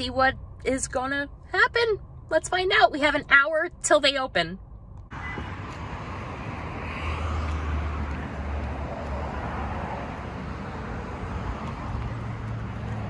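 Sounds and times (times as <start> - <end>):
low engine hum: 0.0 - 13.0
road noise hiss: 5.1 - 13.0.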